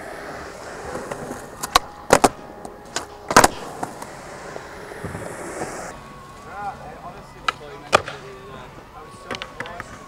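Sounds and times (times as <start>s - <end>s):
skateboard clacking on concrete: 0.9s - 4.2s, 7.4s - 8.2s, 9.2s - 10.0s.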